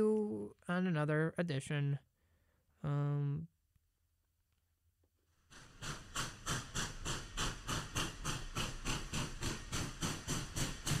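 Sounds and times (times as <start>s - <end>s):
steam locomotive chuffing: 5.5s - 11.0s.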